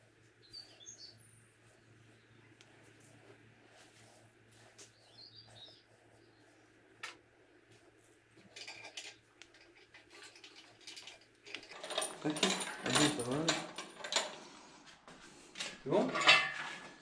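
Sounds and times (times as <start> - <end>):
low steady hum: 0.0 - 17.0
bird chirping: 0.4 - 2.6, 4.9 - 6.6
handling clicks and rustles: 7.9 - 14.5.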